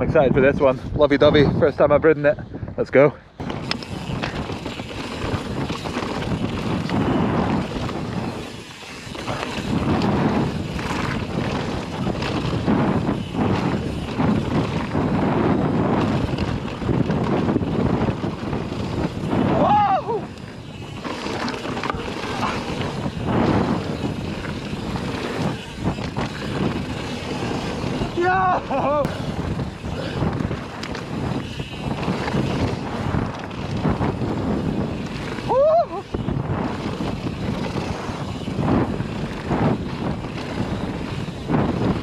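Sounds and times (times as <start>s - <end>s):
bike rattling over bumps: 0.0s - 42.0s
wind buffeting microphone: 0.0s - 42.0s
tyres rushing over dirt and stones: 3.4s - 41.4s.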